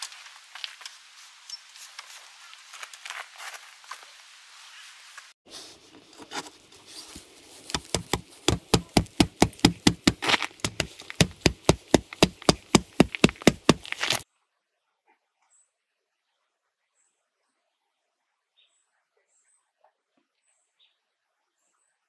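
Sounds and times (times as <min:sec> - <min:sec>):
mallet hammering metal stake: 0:07.7 - 0:14.2.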